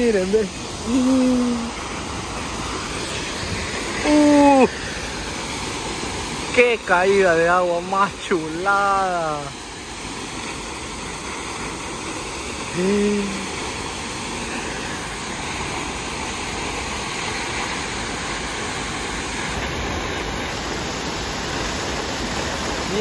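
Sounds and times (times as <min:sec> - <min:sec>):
waterfall rushing: 0:00.0 - 0:23.0
short vocal sound: 0:00.8 - 0:01.7, 0:12.8 - 0:13.5.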